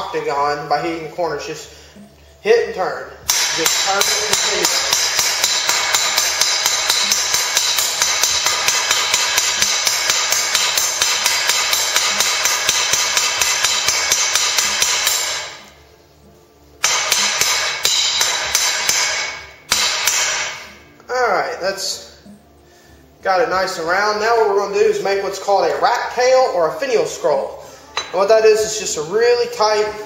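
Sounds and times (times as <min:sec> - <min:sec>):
hammer blows on ringing anvil: 0:03.3 - 0:15.6, 0:16.8 - 0:20.8, 0:27.9 - 0:28.9.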